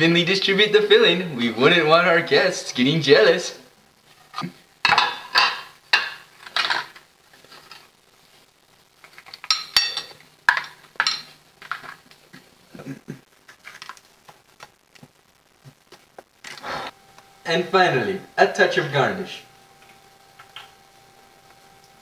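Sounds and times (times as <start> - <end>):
utensils clinking and scraping dishes: 9.2 - 12.0.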